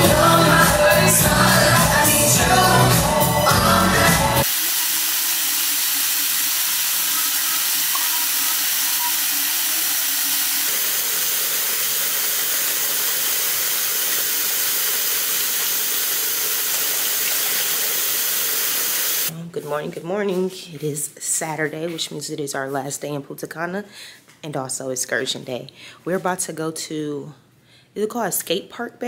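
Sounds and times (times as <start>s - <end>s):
music: 0.0s - 4.5s
running water hiss: 4.4s - 19.3s.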